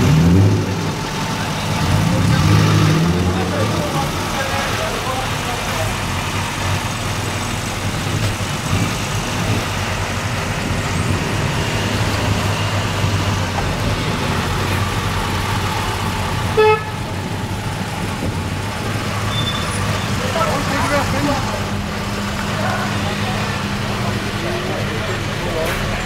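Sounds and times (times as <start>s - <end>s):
cars driving past: 0.0s - 26.0s
car horn toot: 16.5s - 17.0s.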